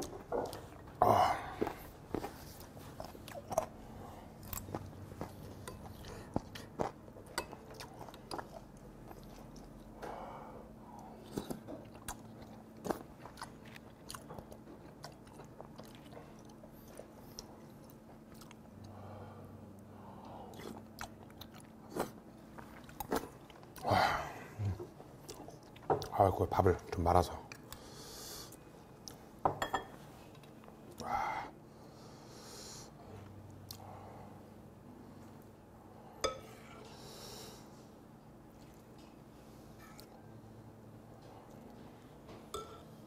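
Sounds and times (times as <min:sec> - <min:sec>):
chewing and mouth sounds: 0:00.0 - 0:10.0, 0:11.0 - 0:19.0, 0:20.4 - 0:24.0, 0:24.6 - 0:26.2, 0:38.4 - 0:39.2.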